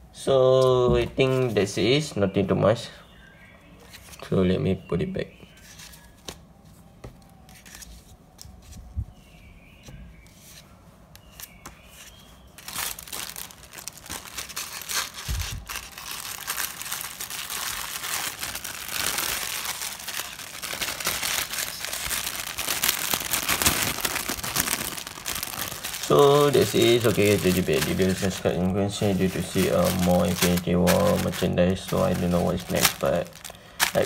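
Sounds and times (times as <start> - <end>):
faint handling sounds: 5.4 - 34.0
plastic bag crinkling: 12.6 - 34.0.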